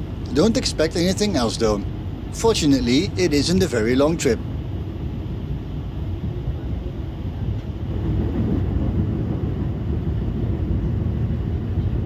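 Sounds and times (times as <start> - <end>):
train rumbling on rails: 0.0 - 12.0.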